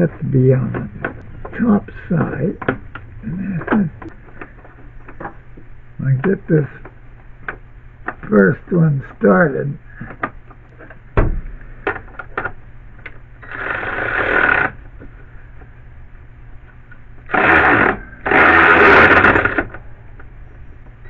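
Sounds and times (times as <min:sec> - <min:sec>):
cordless drill driving bolt: 0:17.3 - 0:19.8.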